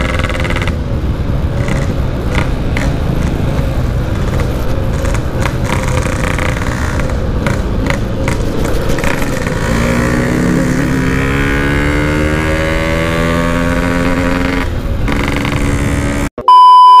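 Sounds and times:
two-stroke motorcycle engine: 0:00.0 - 0:16.3
steady test-tone beep: 0:16.4 - 0:17.0.

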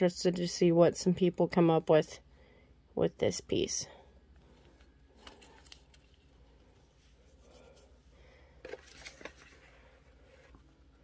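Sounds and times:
plastic bags being handled: 0:04.4 - 0:11.0.

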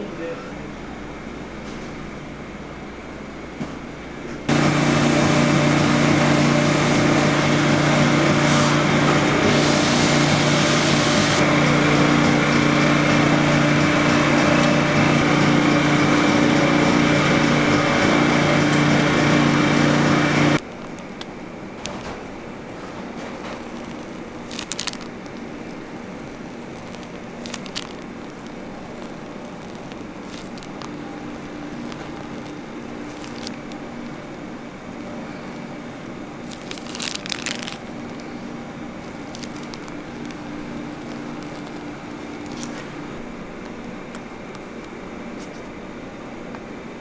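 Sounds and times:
steady machine hum: 0:00.0 - 0:47.0
plastic piping bag crinkling: 0:22.7 - 0:34.6, 0:35.5 - 0:45.6.

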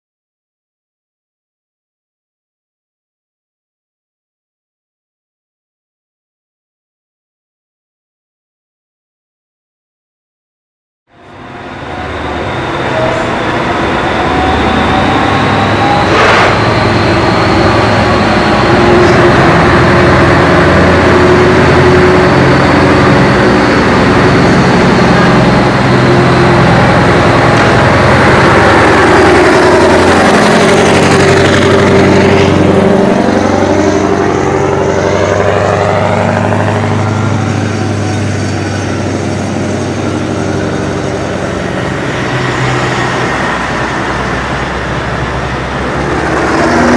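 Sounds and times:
truck engines revving: 0:11.2 - 0:46.9.

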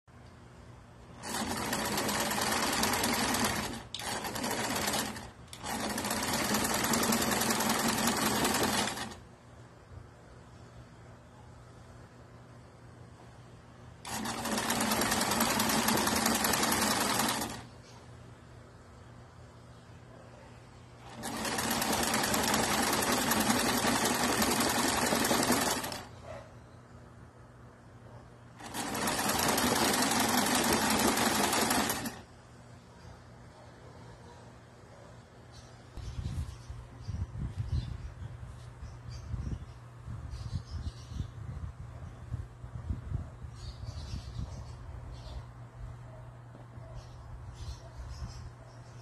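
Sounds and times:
sewing machine stitching: 0:01.1 - 0:09.2, 0:14.0 - 0:17.7, 0:21.0 - 0:26.2, 0:28.6 - 0:32.3.

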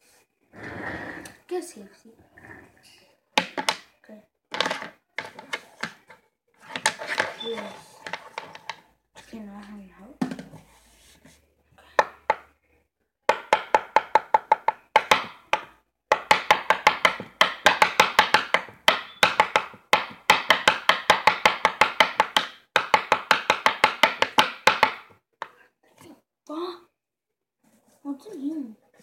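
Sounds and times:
pencil tapping on tabletop: 0:03.4 - 0:03.9, 0:12.0 - 0:12.5, 0:13.3 - 0:25.2.

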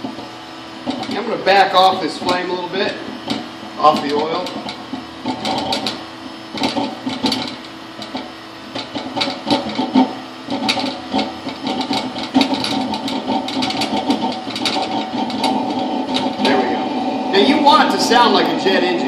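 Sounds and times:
fire sputtering and crackling: 0:00.0 - 0:19.0
heater blower rushing: 0:00.0 - 0:19.0.

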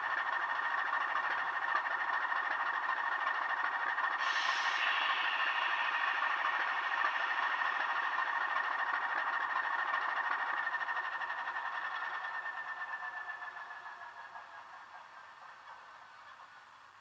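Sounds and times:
model diesel engine idling: 0:00.0 - 0:17.0
short hiss: 0:04.2 - 0:08.1.

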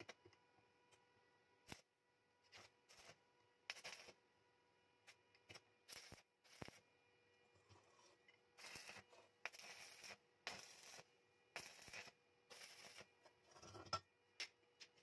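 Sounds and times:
welding arc crackle and hiss: 0:01.7 - 0:01.9, 0:02.5 - 0:04.2, 0:05.5 - 0:06.8, 0:08.6 - 0:13.2.

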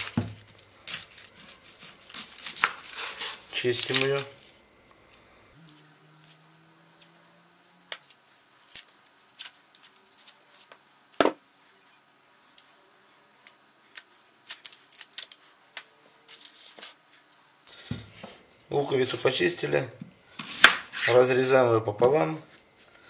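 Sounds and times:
onion skin crackling and tearing: 0:00.0 - 0:11.2, 0:13.4 - 0:15.4.

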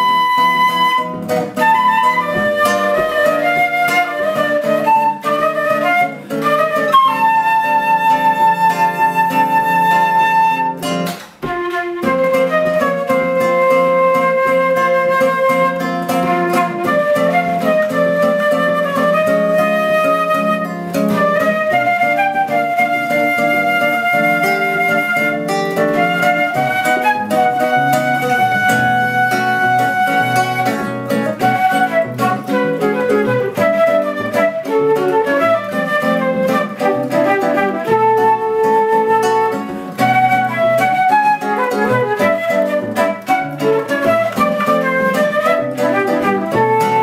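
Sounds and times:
flute melody: 0:00.0 - 0:47.0
plucked classical guitar: 0:00.0 - 0:47.0.

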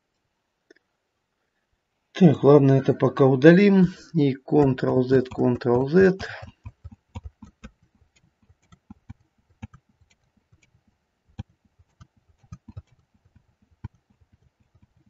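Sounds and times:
keyboard keys clicking: 0:04.6 - 0:10.8, 0:11.4 - 0:15.0.

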